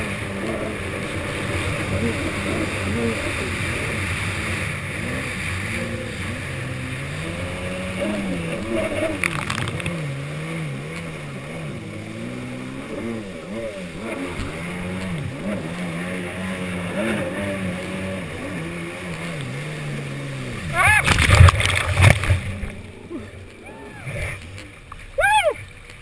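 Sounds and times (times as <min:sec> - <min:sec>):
jet ski engine revving: 0:00.0 - 0:26.0
water spraying off hull: 0:18.6 - 0:26.0.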